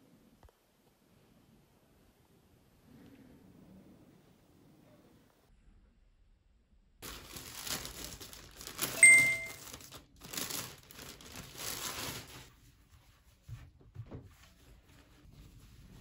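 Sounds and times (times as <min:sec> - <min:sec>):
plastic bag crinkling: 0:07.0 - 0:12.5
short bright ding: 0:09.0 - 0:09.6.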